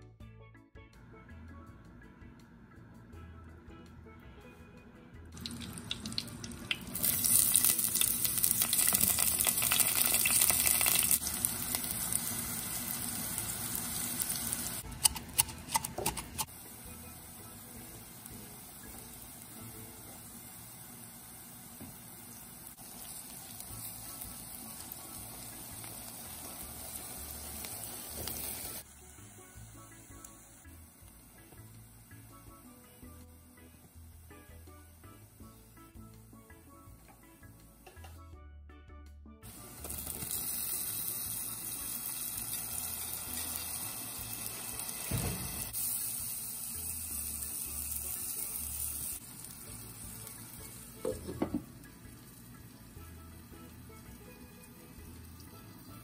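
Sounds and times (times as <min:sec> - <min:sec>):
onions sizzling in hot oil: 0:05.4 - 0:32.3, 0:39.5 - 0:56.0.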